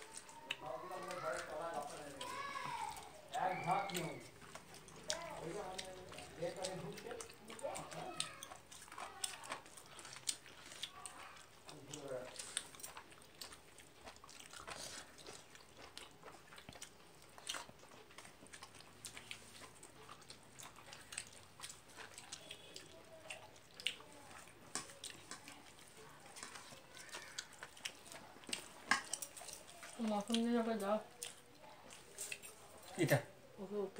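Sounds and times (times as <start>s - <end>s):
wet clicks of fingers mixing rice: 0.0s - 32.9s
person chewing: 0.0s - 33.2s.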